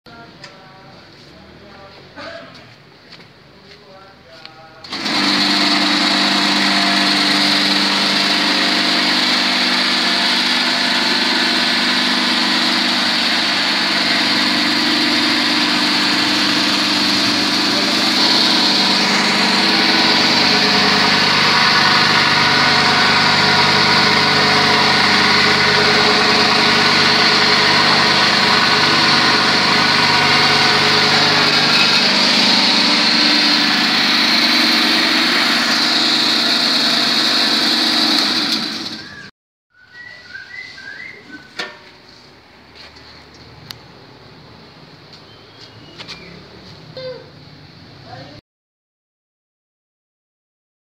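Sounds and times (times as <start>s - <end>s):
grinding machine motor whine: 4.8s - 39.3s.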